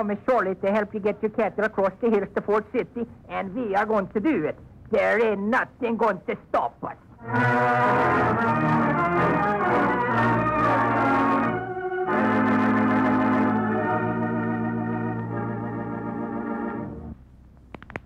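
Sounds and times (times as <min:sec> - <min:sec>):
organ chords: 0:07.1 - 0:17.2.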